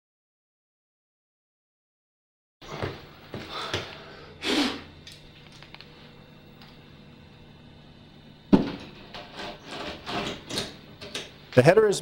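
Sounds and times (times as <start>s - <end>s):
short scrape: 9.2s - 10.4s.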